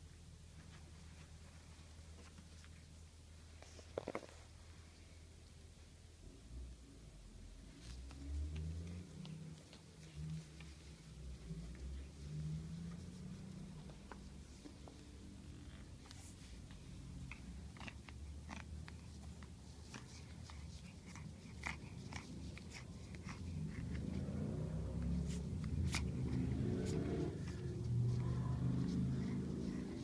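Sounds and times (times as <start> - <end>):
puppy chewing plush toy: 15.6 - 30.0
puppy growling: 17.0 - 30.0.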